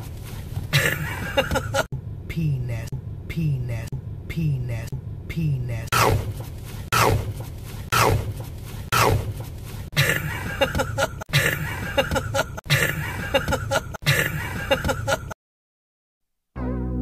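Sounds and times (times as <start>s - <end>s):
vehicle cab rumble: 0.0s - 15.4s
young man laughing: 0.7s - 1.9s, 10.0s - 15.4s.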